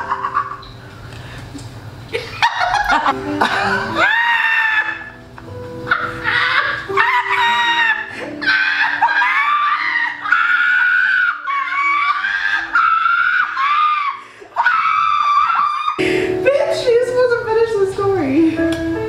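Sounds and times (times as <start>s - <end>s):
women shrieking and laughing: 2.2s - 5.2s, 5.9s - 16.0s
background music: 2.8s - 15.0s, 16.0s - 19.0s.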